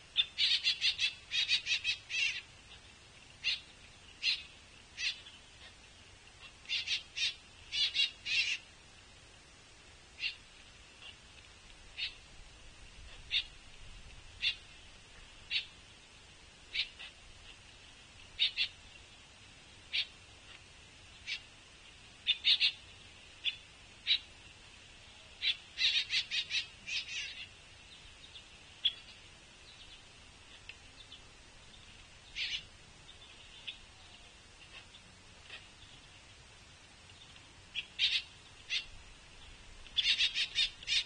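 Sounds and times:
young woodpecker begging calls: 0.2 - 5.8, 6.4 - 8.7, 10.2 - 10.4, 12.0 - 12.2, 13.1 - 13.6, 14.4 - 14.7, 15.5 - 15.8, 16.7 - 17.6, 18.4 - 18.8, 19.9 - 20.2, 21.2 - 21.5, 22.2 - 22.8, 25.4 - 27.6, 32.2 - 36.0, 37.7 - 39.0, 39.8 - 41.0.

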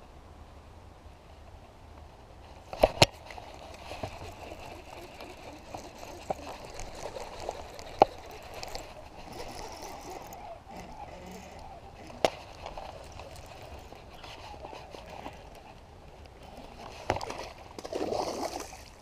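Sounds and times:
soft rustling: 2.4 - 17.8
fishing reel clicks and knocks: 3.9 - 15.6.

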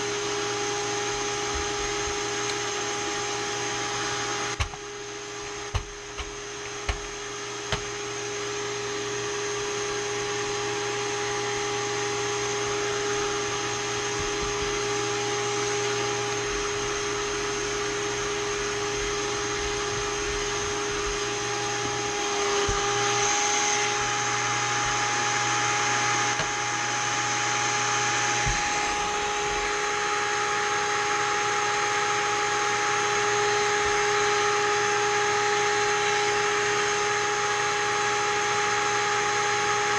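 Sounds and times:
tool knocks: 4.6 - 4.8.

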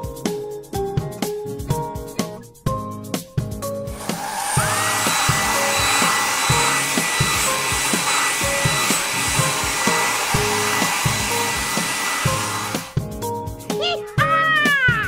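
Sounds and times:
children's music with steady beat: 0.0 - 15.0
cartoon blow-dryer rush and whine: 3.9 - 13.0.

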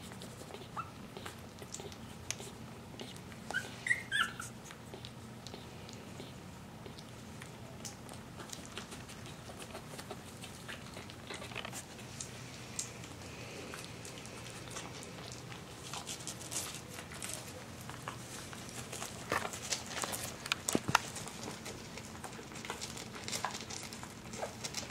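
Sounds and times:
low steady hum: 0.0 - 24.9
puppy paws scratching and pattering: 0.0 - 24.9
puppy squeaks: 0.5 - 1.9, 3.0 - 5.1.

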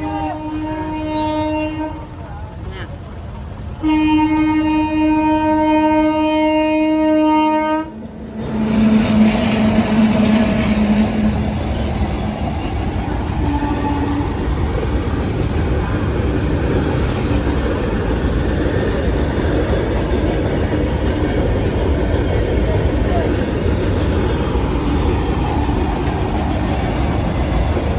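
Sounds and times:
train horn: 0.0 - 2.2, 3.8 - 11.5, 13.4 - 14.4
moving train rumbling and rattling: 0.0 - 27.9.

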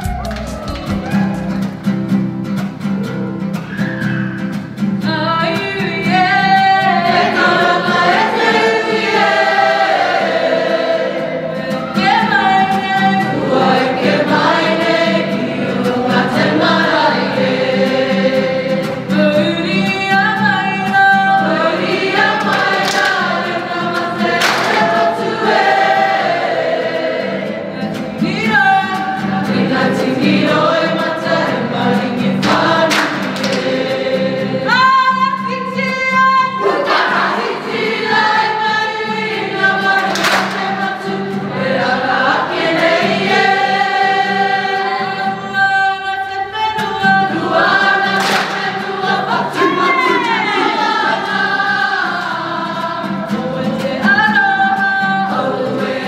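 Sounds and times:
strummed guitar: 0.0 - 56.0
children singing in chorus: 6.1 - 19.1, 21.3 - 34.7, 36.5 - 45.5, 46.2 - 56.0.

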